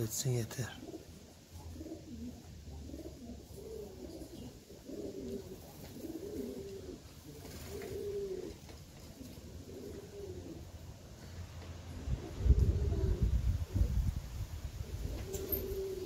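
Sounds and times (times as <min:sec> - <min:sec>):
pigeons cooing: 0:00.7 - 0:10.8, 0:11.9 - 0:14.1, 0:14.8 - 0:16.0
wind rumble on microphone: 0:11.9 - 0:15.8.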